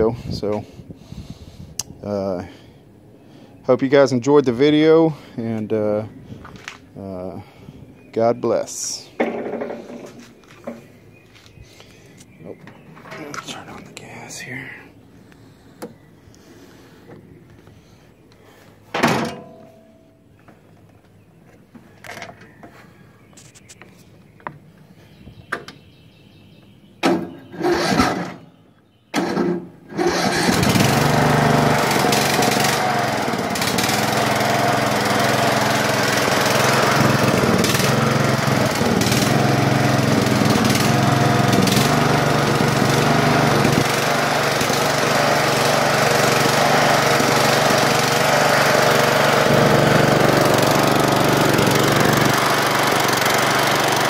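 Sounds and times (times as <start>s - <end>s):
lawn mower engine running: 27.1s - 28.4s, 29.2s - 54.0s
starter motor cranking: 27.6s - 28.4s, 29.2s - 54.0s.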